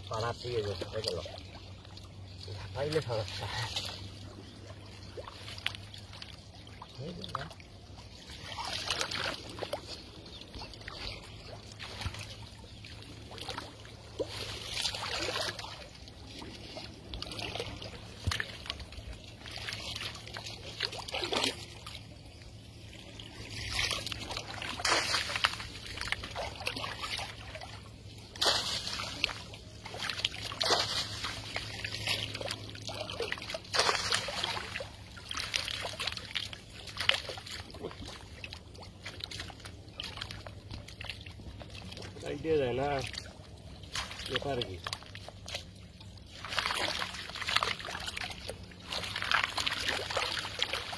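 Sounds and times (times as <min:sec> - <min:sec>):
water sloshing and splashing: 0:00.0 - 0:50.9
water running off netting: 0:02.3 - 0:10.2, 0:10.8 - 0:22.1, 0:23.0 - 0:40.6, 0:46.2 - 0:50.9.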